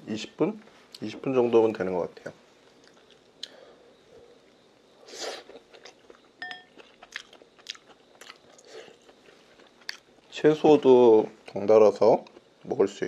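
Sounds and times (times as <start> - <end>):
man chewing noodles: 5.0 - 10.2.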